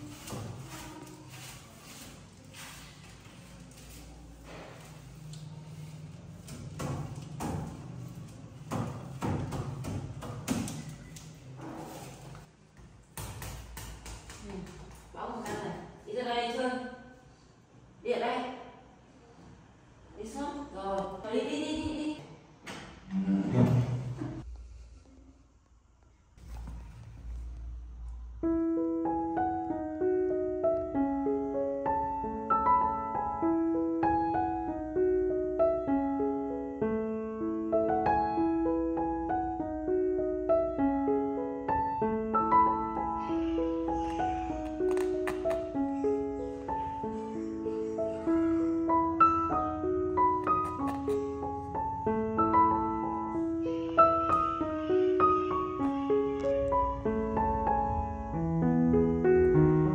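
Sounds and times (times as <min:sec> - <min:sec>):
broom sweeping a floor: 0:00.0 - 0:06.5
gentle piano melody: 0:28.0 - 0:59.9.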